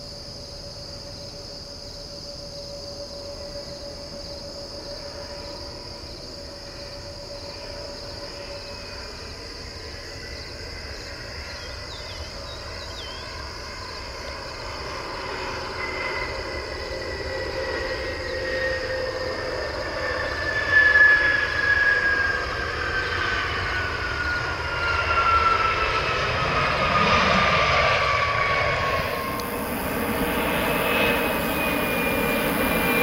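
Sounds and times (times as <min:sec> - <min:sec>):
crickets chirring: 0:00.0 - 0:33.0
jet engines whining: 0:13.2 - 0:33.0.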